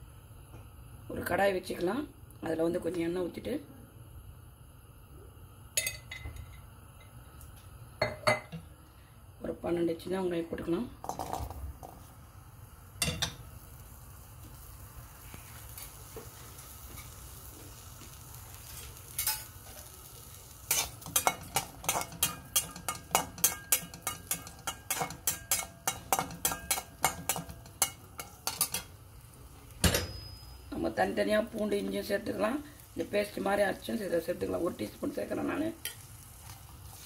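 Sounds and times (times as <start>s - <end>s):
onions sizzling in hot oil: 4.1s - 37.0s
metal spatula scraping pan: 20.7s - 28.9s.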